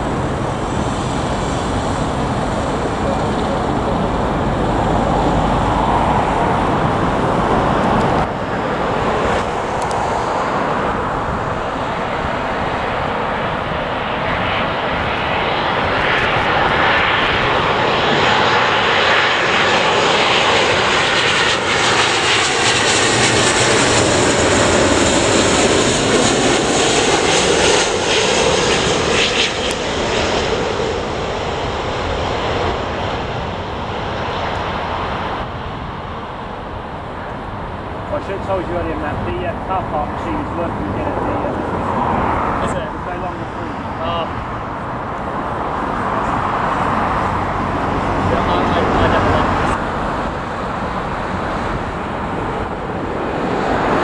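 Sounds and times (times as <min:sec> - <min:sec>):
jet airliner engine passing: 0:00.0 - 0:54.0.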